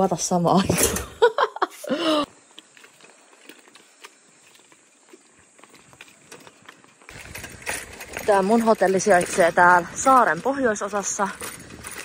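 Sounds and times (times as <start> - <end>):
bicycle rattling on bumpy path: 2.7 - 12.0.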